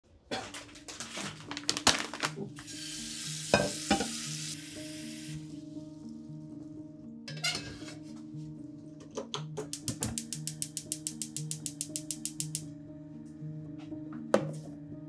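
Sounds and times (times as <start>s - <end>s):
soft background music: 0.1s - 15.0s
plastic bag crinkling: 0.6s - 2.6s
kitchen tap running: 2.6s - 5.4s.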